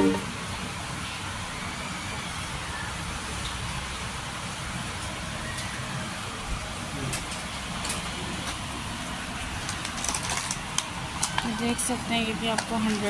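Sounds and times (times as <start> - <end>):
busy shop background noise: 0.0 - 13.0
plastic packaging clicks and rattles: 9.6 - 11.6, 12.4 - 13.0.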